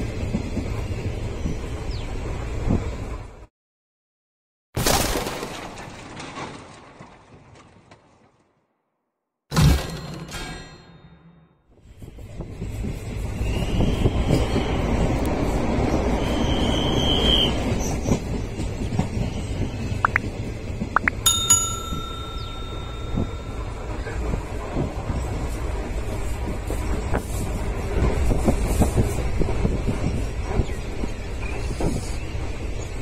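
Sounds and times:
train low rumble: 0.0 - 3.5, 11.7 - 33.0
sharp metallic ring: 21.3 - 24.1.

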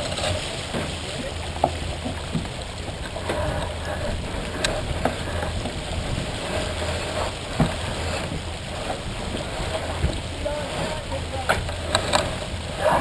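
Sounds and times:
water rushing along hull: 0.0 - 13.0
wind rumble on microphone: 0.0 - 13.0.

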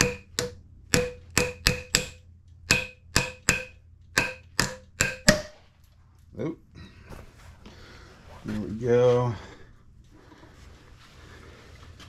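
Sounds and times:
hammer striking metal nut: 0.0 - 5.7.

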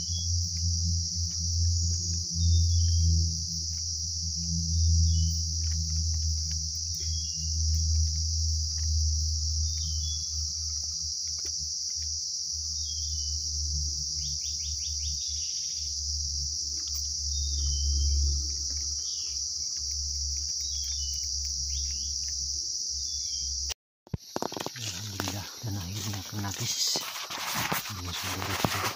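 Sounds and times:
bird chirps: 0.0 - 0.4, 2.2 - 3.2, 4.8 - 11.0, 12.7 - 13.4, 14.1 - 16.0, 16.8 - 22.3, 22.9 - 23.7
low rumble: 0.0 - 11.7
insect drone: 0.0 - 28.9
rapid bird chatter: 5.1 - 11.4, 14.1 - 16.0, 16.8 - 22.4, 24.2 - 28.9.

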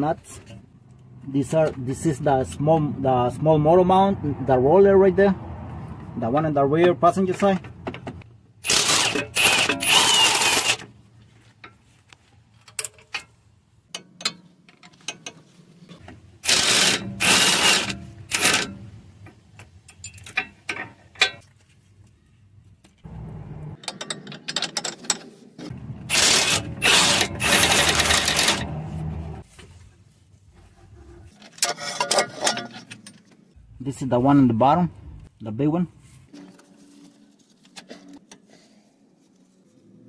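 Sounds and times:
ratchet wrench clicking: 8.7 - 10.8, 26.1 - 28.7.

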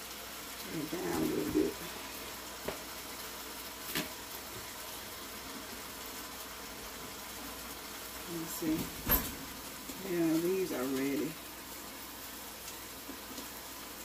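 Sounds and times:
meat sizzling in a skillet: 0.0 - 14.0.

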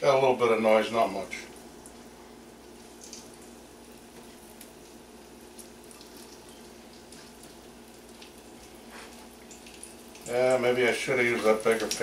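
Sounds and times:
meat sizzling in hot oil: 2.6 - 12.0.

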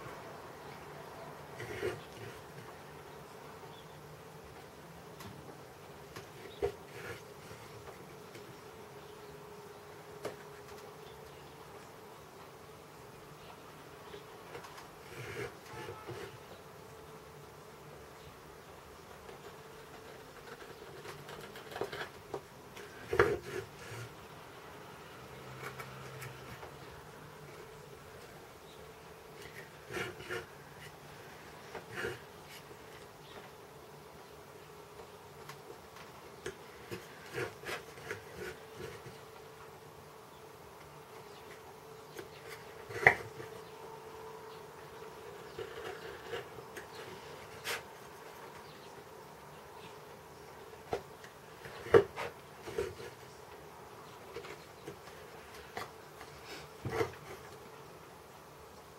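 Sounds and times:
faint steady hum: 0.0 - 58.9
knife scraping wood: 1.6 - 2.7, 6.2 - 8.0, 14.5 - 16.5, 19.3 - 24.2, 29.3 - 33.2, 36.4 - 39.2, 42.1 - 43.6, 45.3 - 47.9, 51.6 - 53.3, 54.3 - 57.6.

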